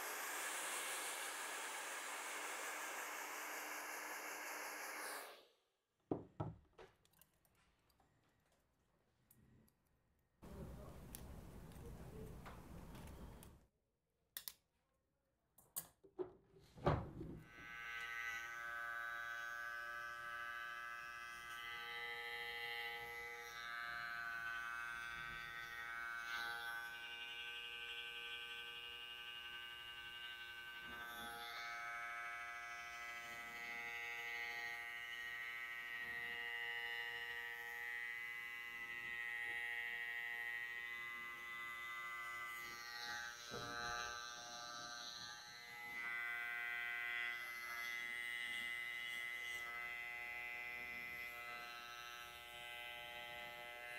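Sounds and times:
electric hair clippers buzzing: 0:00.0 - 0:05.4, 0:17.4 - 0:53.9.

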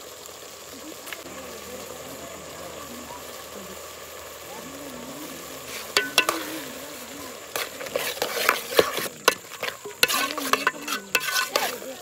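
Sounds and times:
food frying: 0:00.0 - 0:12.0
spoon scraping in a pot: 0:05.7 - 0:06.8, 0:07.5 - 0:11.9
spoon knocking against pot: 0:06.0 - 0:06.5, 0:08.5 - 0:11.7.

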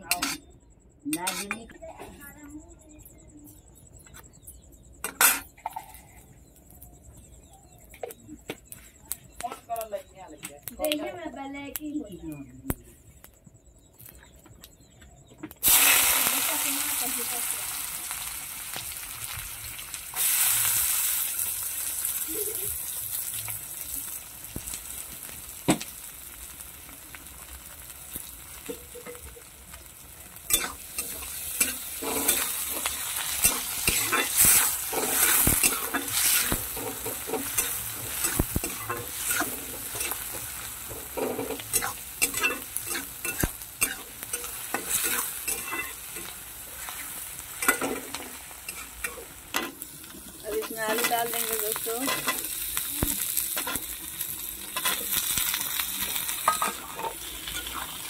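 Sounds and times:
metal spatula scraping a pan: 0:00.0 - 0:00.5, 0:01.1 - 0:01.7, 0:30.4 - 0:52.6, 0:54.6 - 0:58.0
onions sizzling in hot oil: 0:15.6 - 0:58.0.

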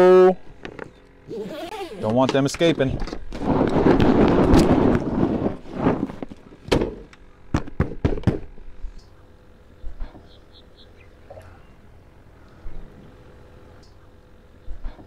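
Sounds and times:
sharp knocks: 0:06.7 - 0:08.5.

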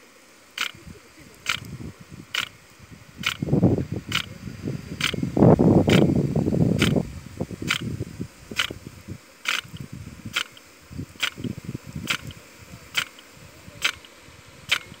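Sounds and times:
rain gun arm clacking: 0:11.2 - 0:15.0.

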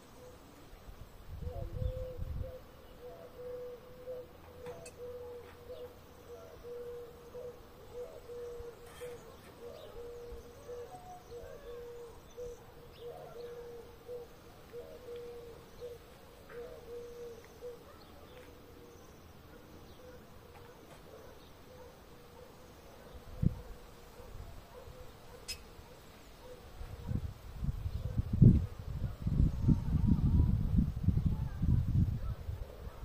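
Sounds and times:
bird low repeated call: 0:01.4 - 0:17.9
faint high bird chirps: 0:01.5 - 0:22.5, 0:25.0 - 0:25.8.

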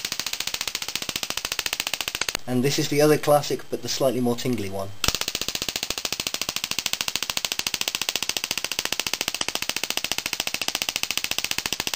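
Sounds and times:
tesla coil buzzing crackle: 0:00.0 - 0:04.4, 0:05.0 - 0:11.9.

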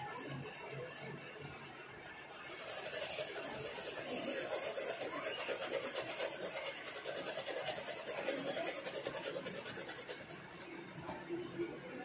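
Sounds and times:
fast scrubbing of chip: 0:02.4 - 0:10.7.

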